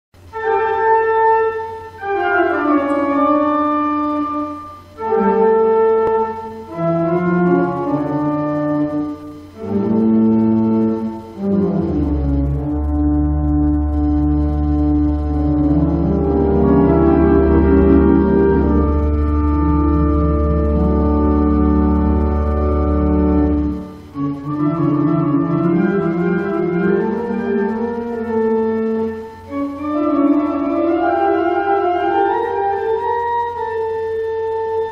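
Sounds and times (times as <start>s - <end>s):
slow music of held chords: 0.2s - 34.9s
steady low hum: 0.2s - 34.9s.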